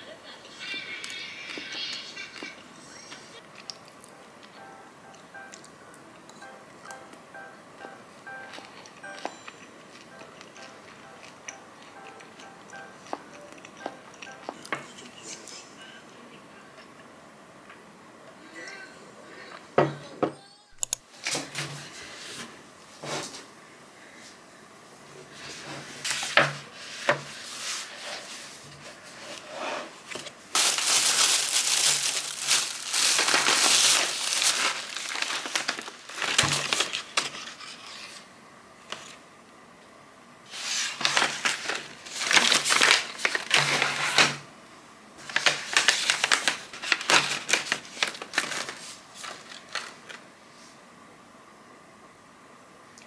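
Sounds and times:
plastic pouches crinkling: 30.5s - 37.8s, 41.0s - 44.3s, 45.2s - 50.2s.

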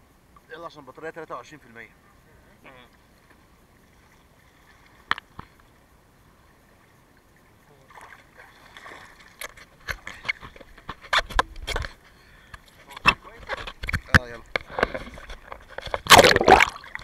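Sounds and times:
water splashing against camera: 7.8s - 17.0s.

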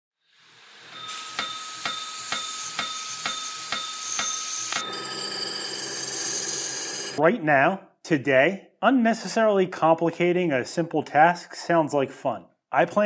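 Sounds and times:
milling machine cutting metal: 0.9s - 7.2s
machine hum with tones: 1.0s - 7.2s.

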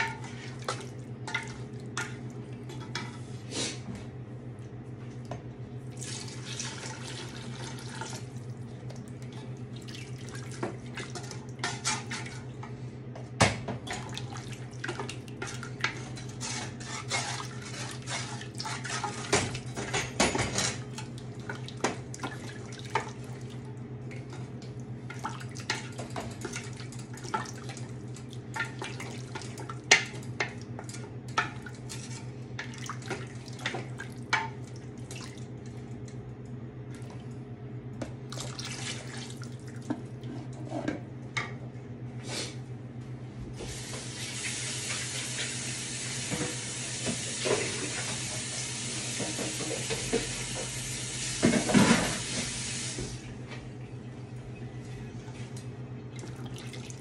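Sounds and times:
wooden spoon stirring stew: 0.0s - 3.5s, 13.9s - 19.9s.

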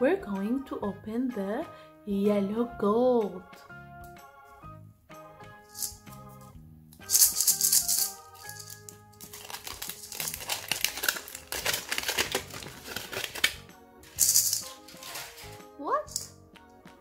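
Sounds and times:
background music: 0.0s - 17.0s
foil wrapper crinkling: 7.3s - 15.6s.

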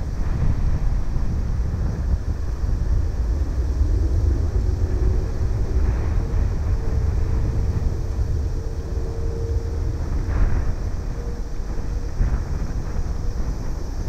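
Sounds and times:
jet engines rumbling with whine: 0.0s - 14.0s
wind buffeting microphone: 0.0s - 14.0s.

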